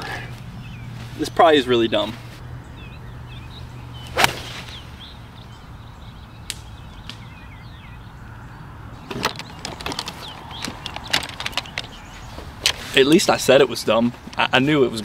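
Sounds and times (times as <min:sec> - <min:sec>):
birds chirping: 0:00.0 - 0:15.0
golf club striking ball: 0:04.0 - 0:04.8
small clicks and rustles: 0:09.1 - 0:12.9.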